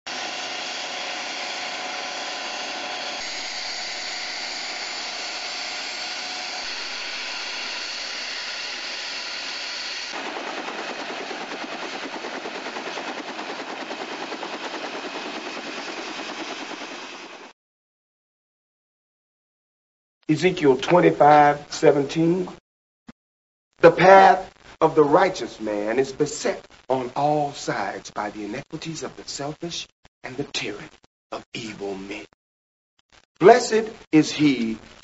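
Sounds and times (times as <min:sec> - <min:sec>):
rotor blades chopping: 0:00.1 - 0:17.5
helicopter turbine whine: 0:00.1 - 0:17.6.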